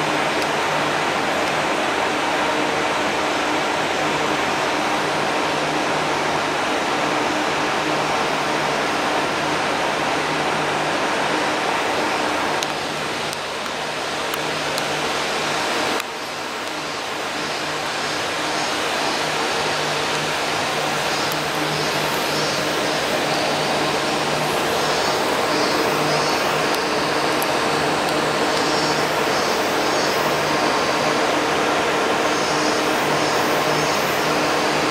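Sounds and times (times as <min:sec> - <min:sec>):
steady machine rush: 0:13.9 - 0:34.9.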